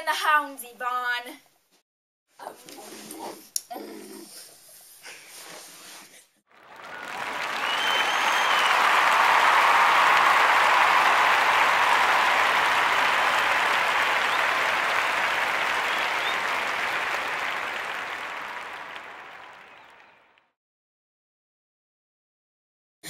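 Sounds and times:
applause: 6.5 - 20.6.

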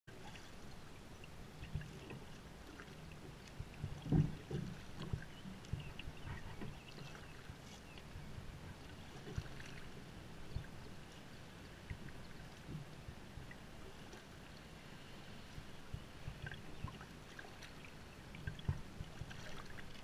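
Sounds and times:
paddle blades dipping: 0.1 - 20.0
water washing along hull: 0.1 - 20.0
low knocks on hull: 3.8 - 6.8, 18.4 - 19.4.

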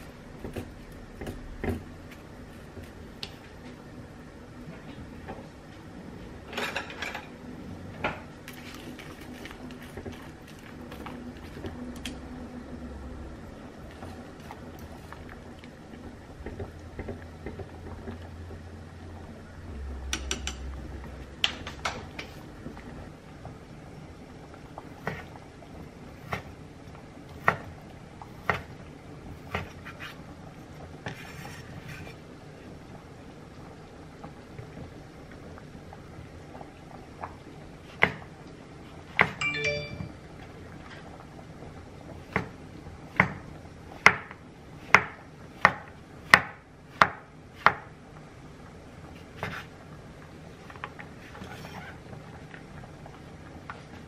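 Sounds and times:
knife chopping on wooden board: 44.9 - 47.9.

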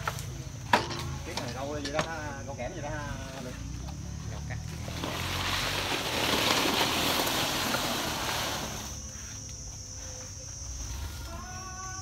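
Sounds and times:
nut bunches rustling and crackling: 3.4 - 9.7.

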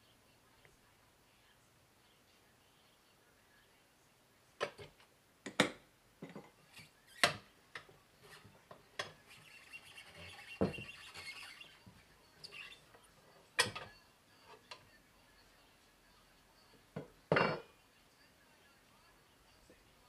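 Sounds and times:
rubber squeaking on rim: 9.2 - 13.0.

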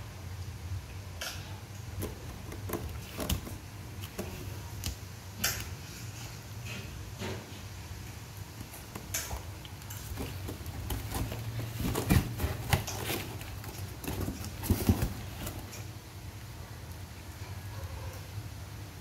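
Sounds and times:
cat scratching and rustling: 1.8 - 5.1, 8.4 - 16.0
paws thumping on cardboard: 2.0 - 4.6, 10.0 - 15.7.

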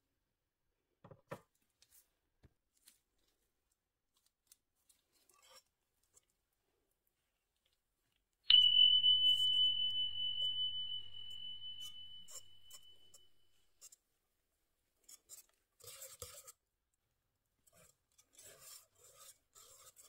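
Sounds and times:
bell-like ding: 8.5 - 13.4.

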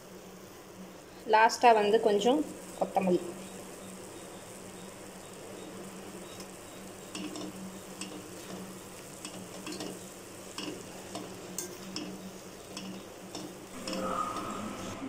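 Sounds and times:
metal spatula scraping pan: 9.6 - 15.0.

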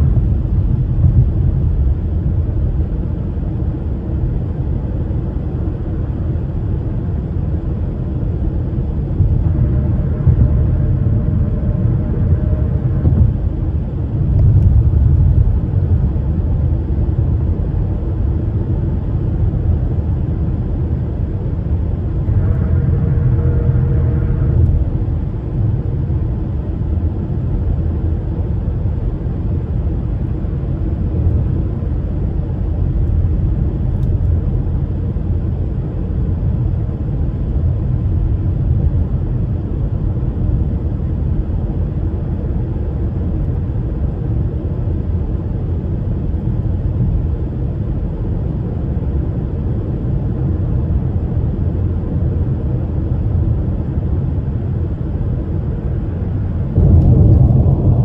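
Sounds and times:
tyre and engine rumble: 8.3 - 16.6, 21.4 - 26.5.

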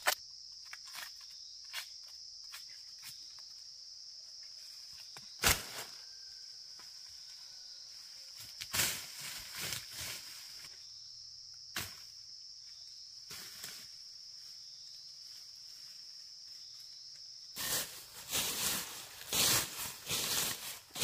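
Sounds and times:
rustling and crunching: 17.6 - 21.0.

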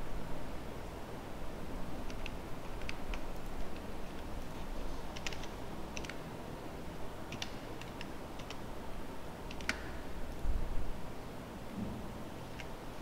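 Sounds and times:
keyboard keys clicking: 5.1 - 6.2.

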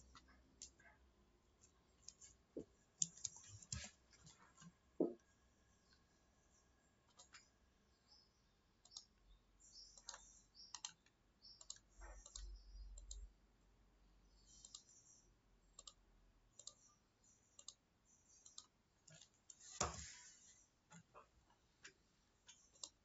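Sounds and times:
computer mouse clicking: 1.6 - 2.4, 3.0 - 4.0, 7.1 - 7.5, 8.8 - 9.2, 9.9 - 13.3, 14.5 - 15.1, 15.8 - 16.9, 17.5 - 20.0, 22.5 - 23.0.

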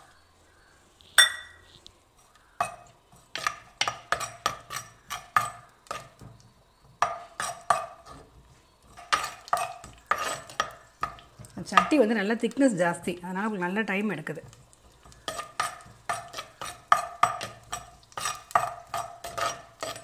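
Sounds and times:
ringing metal clink: 1.2 - 1.6
spoon stirring and scraping pot: 1.2 - 13.2, 13.8 - 20.0.

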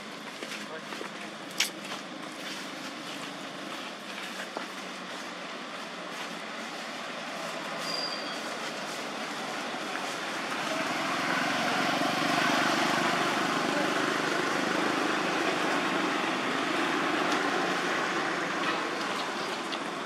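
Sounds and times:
motor vehicle passing: 9.1 - 20.0.

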